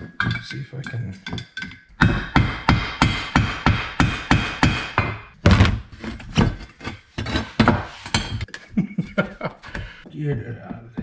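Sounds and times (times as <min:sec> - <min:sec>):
metal scrape: 0:05.9 - 0:08.5.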